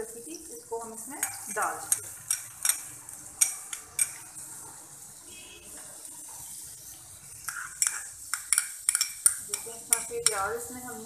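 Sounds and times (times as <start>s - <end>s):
onion sizzling in a frying pan: 0.0s - 11.0s
spoon scraping and knocking pan: 1.1s - 4.4s, 5.8s - 11.0s.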